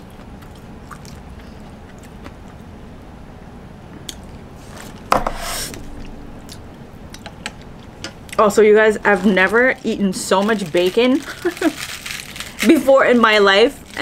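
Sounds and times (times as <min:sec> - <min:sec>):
short loud hiss: 0:05.2 - 0:06.0.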